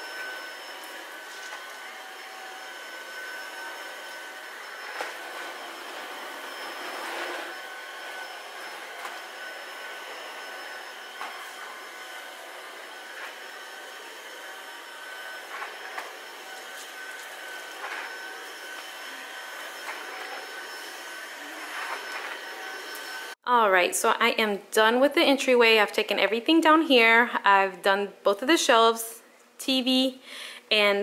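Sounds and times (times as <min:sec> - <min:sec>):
stick vacuum whine and suction: 0:00.0 - 0:23.4.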